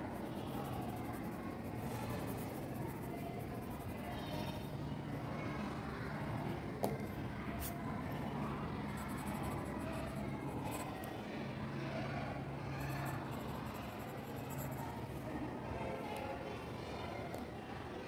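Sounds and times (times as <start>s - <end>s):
low background hum: 0.0s - 18.0s
pencil scratching on paper: 0.2s - 4.3s, 8.9s - 10.9s, 12.9s - 14.8s.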